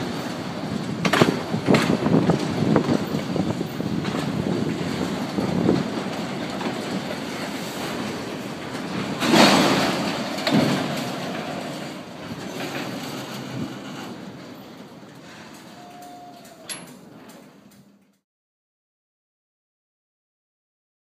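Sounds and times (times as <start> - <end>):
freight cars rolling on rails: 0.0 - 18.2
loud metal clanks: 6.2 - 14.2
high wheel squeal: 15.4 - 17.0.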